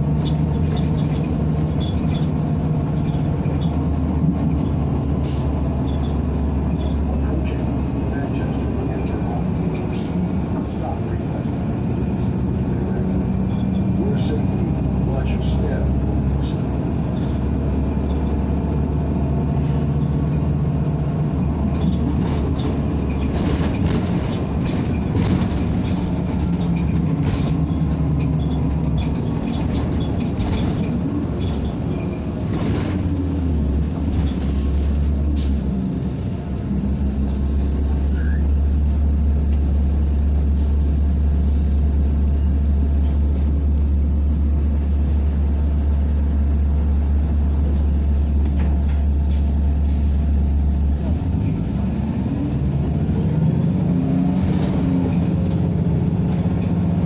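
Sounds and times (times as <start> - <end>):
bus engine drone: 0.0 - 57.0
rattles and knocks: 0.2 - 4.8, 21.4 - 35.2.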